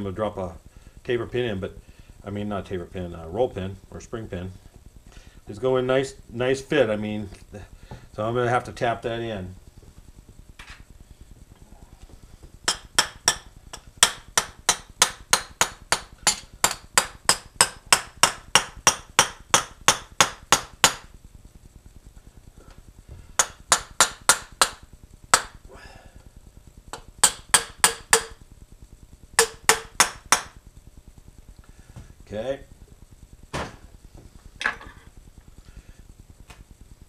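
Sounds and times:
light hammer tapping steel: 27.2s - 28.4s.

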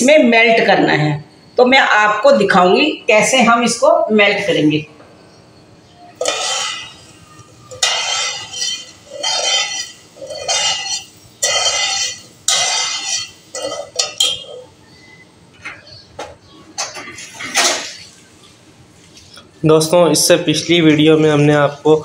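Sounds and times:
spoon scraping pan bottom: 6.2s - 14.7s.

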